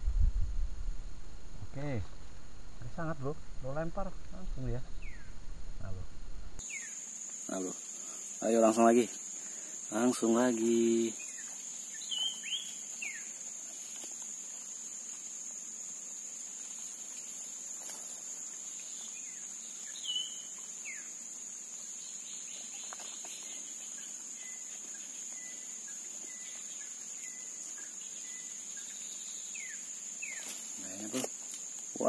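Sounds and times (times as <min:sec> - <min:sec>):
high-pitched insect chorus: 0:01.7 - 0:06.0, 0:06.6 - 0:32.0
sweeping bird chirps: 0:04.8 - 0:05.5, 0:11.0 - 0:13.3, 0:18.9 - 0:21.1.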